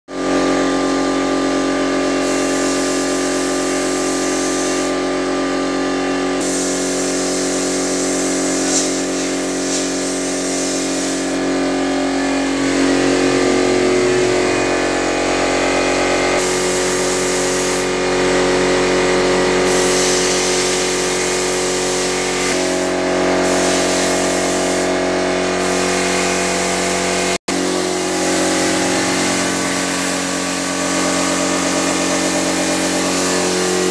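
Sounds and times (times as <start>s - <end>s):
air compressor humming: 0.1s - 33.9s
spray gun hissing: 2.2s - 5.0s, 6.4s - 11.6s, 16.4s - 17.9s, 19.7s - 25.0s, 25.6s - 33.9s.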